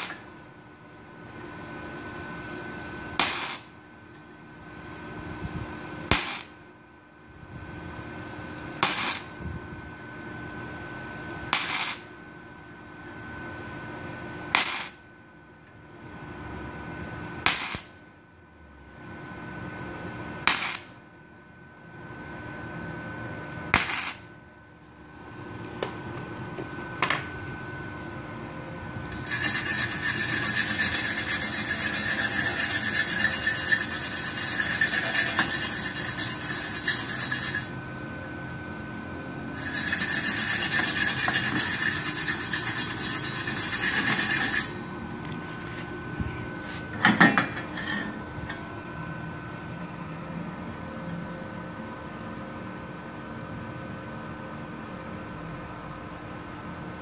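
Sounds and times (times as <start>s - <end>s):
wire brush scrubbing metal: 29.1s - 37.7s, 39.5s - 44.8s.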